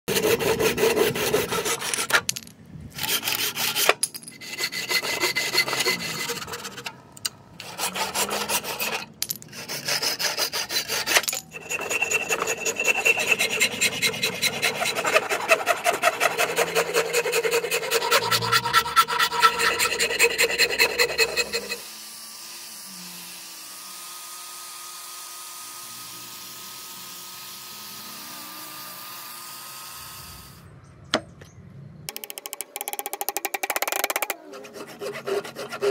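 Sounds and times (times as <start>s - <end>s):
angle grinder sanding hum: 0.1s - 2.2s, 3.0s - 30.5s, 33.9s - 35.9s
rasp filing wood: 0.1s - 2.2s, 2.9s - 7.0s, 7.6s - 21.9s, 33.9s - 35.9s
hand saw cutting wood: 0.1s - 2.3s, 2.9s - 7.0s, 7.6s - 23.3s, 33.7s - 35.9s.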